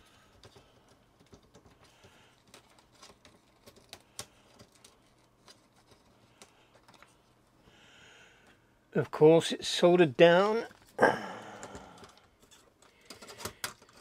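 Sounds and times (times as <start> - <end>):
plastic keyboard parts clicking: 0.0 - 7.1, 11.6 - 14.0.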